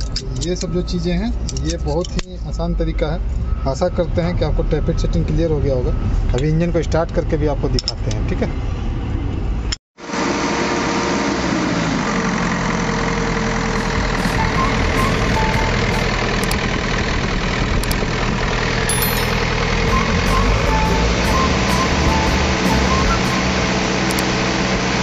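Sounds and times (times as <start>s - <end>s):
diesel engine idling: 11.2s - 25.0s.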